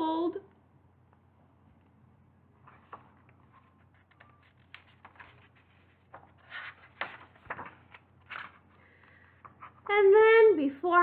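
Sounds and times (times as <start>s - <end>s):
book pages rustling and flapping: 2.6s - 8.8s.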